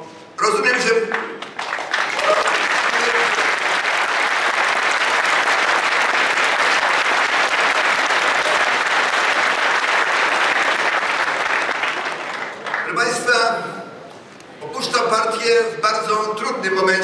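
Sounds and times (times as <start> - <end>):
audience applauding: 1.1 - 13.2.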